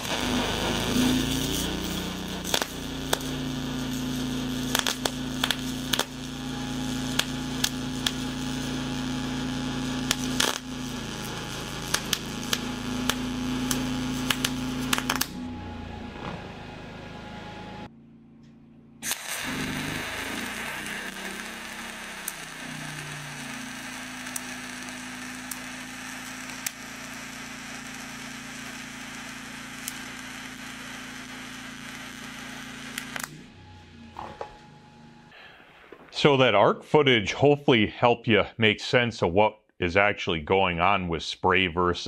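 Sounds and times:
sharp welding crackles: 0.0 - 15.4, 19.0 - 33.5
welding arc hissing: 0.0 - 15.4, 19.0 - 33.4
low hum: 0.0 - 36.8.

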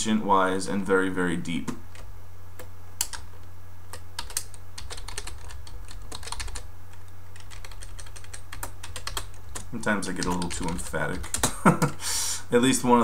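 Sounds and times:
steady low hum: 0.0 - 13.0
computer keyboard typing: 3.0 - 3.3, 3.9 - 11.5.

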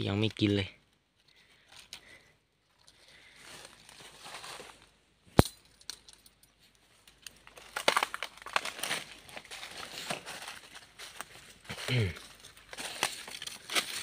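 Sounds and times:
footsteps crunching dry leaves: 3.2 - 4.9, 7.4 - 14.0.

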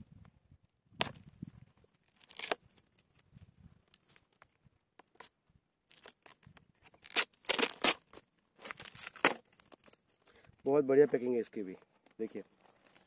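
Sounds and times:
packing tape and cardboard ripping: 2.2 - 2.6, 5.9 - 10.0.

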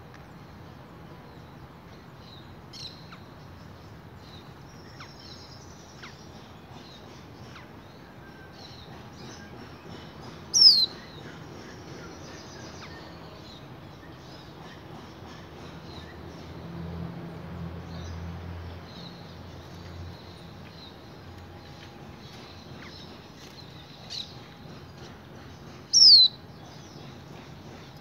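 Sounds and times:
finch chirping: 8.6 - 13.3, 22.3 - 28.0.

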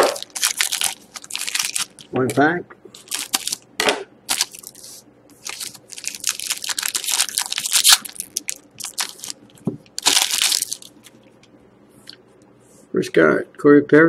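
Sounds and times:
foil wrapper crinkling and tearing: 0.0 - 2.1, 3.0 - 3.6, 4.3 - 11.2.

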